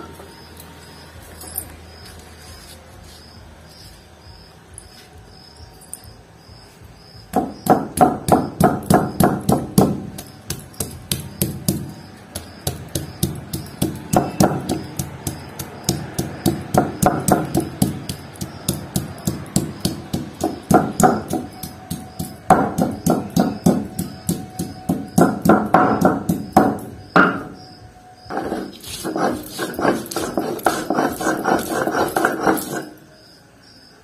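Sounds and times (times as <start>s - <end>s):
stone pestle knocking on slab: 7.3s - 27.6s, 28.3s - 32.9s.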